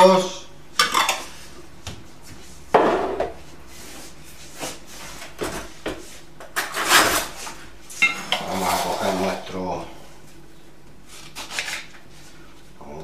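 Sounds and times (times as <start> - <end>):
kitchen items knocking on worktop: 2.7 - 3.4.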